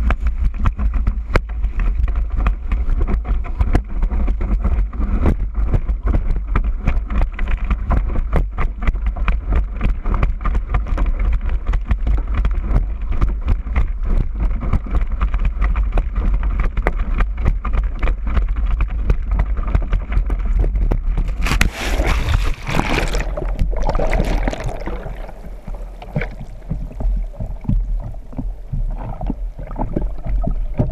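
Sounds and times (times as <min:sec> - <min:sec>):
water rushing under board: 0:00.0 - 0:30.9
water gurgling: 0:00.4 - 0:30.9
wind buffeting microphone: 0:19.3 - 0:30.9
loud splash: 0:21.4 - 0:27.4.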